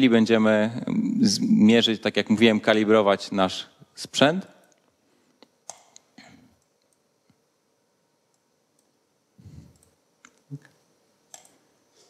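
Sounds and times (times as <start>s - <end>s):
computer mouse clicking: 5.6s - 7.0s, 11.3s - 11.6s.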